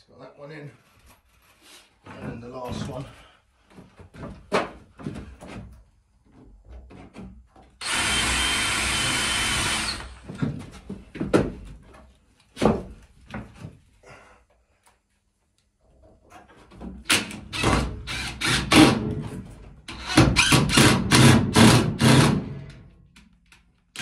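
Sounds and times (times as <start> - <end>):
cordless drill driving screw: 7.8 - 10.2, 17.5 - 18.8.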